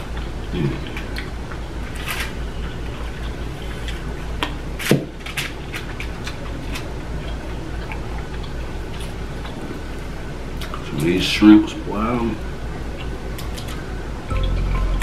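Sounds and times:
low hum: 0:14.3 - 0:15.0.

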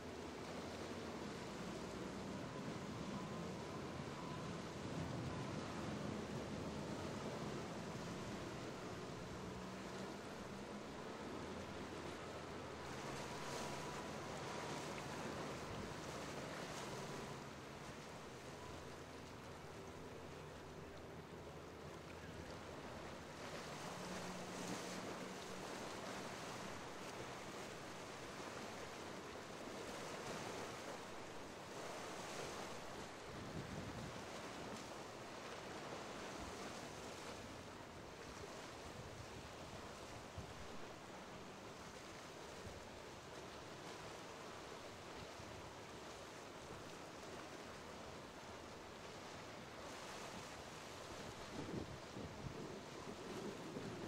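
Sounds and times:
low boat engine drone: 0:00.0 - 0:54.0
waves washing: 0:00.0 - 0:54.0
wind: 0:00.0 - 0:54.0
wind on microphone: 0:33.4 - 0:34.3, 0:51.4 - 0:54.0.

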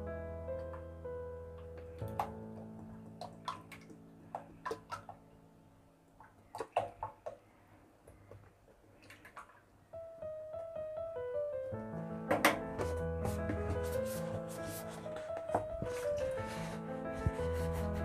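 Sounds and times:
quiet background music: 0:00.0 - 0:07.4, 0:09.8 - 0:18.0.

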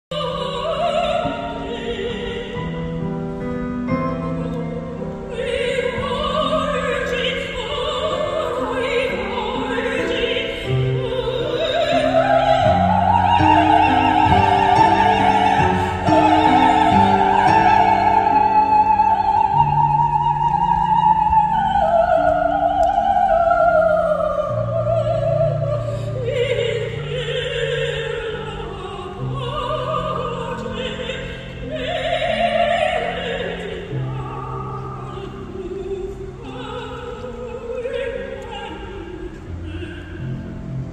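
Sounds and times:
operatic soprano singing: 0:00.1 - 0:40.9
instrumental accompaniment: 0:10.8 - 0:21.6.

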